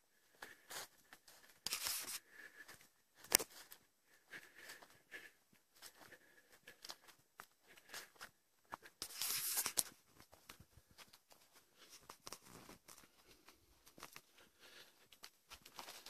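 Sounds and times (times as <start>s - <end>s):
footsteps through dry leaves: 0.7s - 2.2s, 9.0s - 9.9s.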